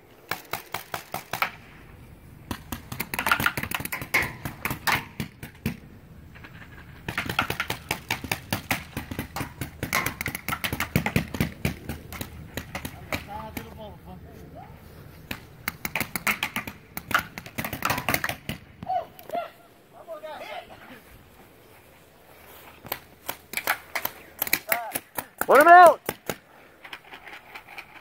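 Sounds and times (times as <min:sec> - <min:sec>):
paintball markers firing: 0:00.2 - 0:01.7, 0:02.5 - 0:05.8, 0:07.0 - 0:13.8, 0:15.3 - 0:18.8, 0:22.8 - 0:26.5.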